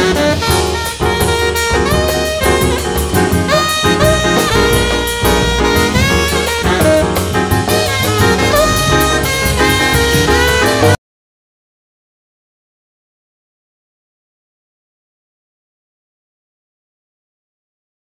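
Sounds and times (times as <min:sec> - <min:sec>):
instrumental jazz music: 0:00.0 - 0:11.0.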